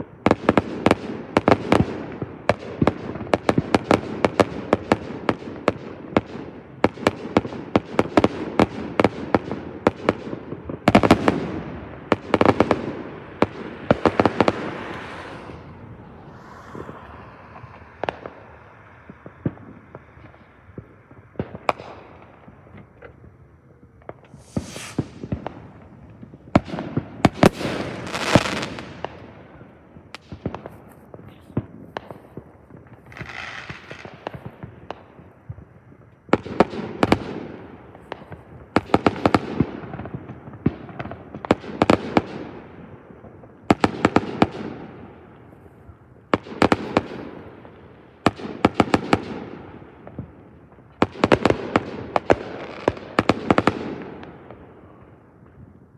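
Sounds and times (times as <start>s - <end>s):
fireworks bangs and pops: 0.0s - 55.9s.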